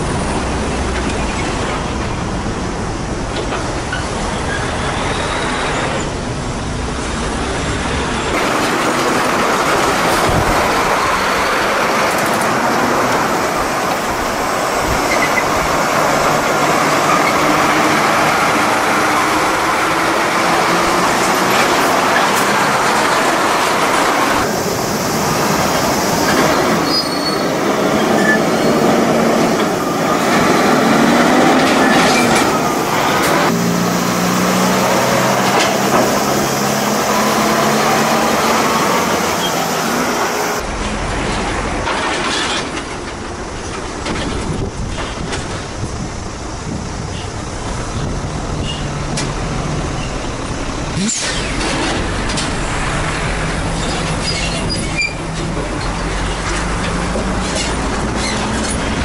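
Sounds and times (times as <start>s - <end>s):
trucks driving past: 0.0s - 59.0s.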